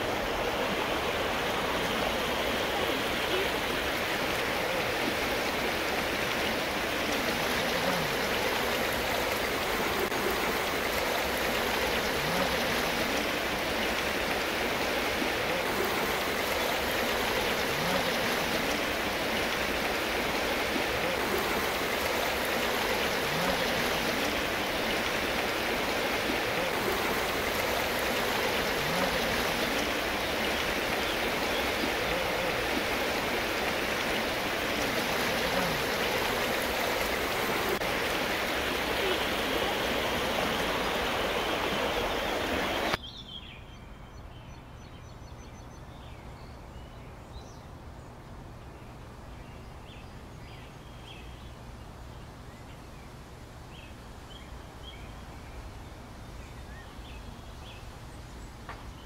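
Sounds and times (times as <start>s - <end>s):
river and waterfall rushing: 0.0s - 43.0s.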